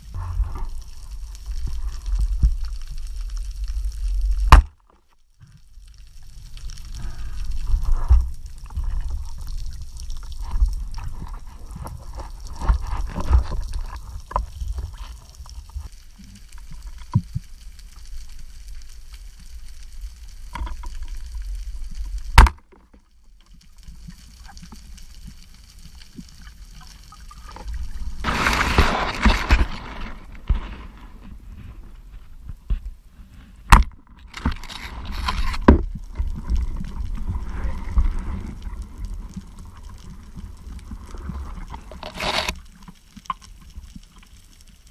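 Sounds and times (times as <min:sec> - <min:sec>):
underwater low rumble: 0:00.0 - 0:04.6, 0:05.2 - 0:22.4, 0:23.2 - 0:44.9
sharp crack: 0:04.4 - 0:04.9, 0:28.2 - 0:31.2
rush of water noise: 0:27.5 - 0:30.8.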